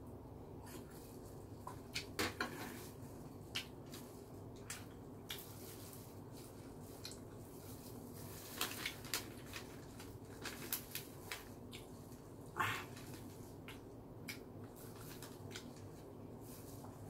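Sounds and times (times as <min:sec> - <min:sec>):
steady low hum: 0:00.0 - 0:17.0
person chewing: 0:03.4 - 0:07.6.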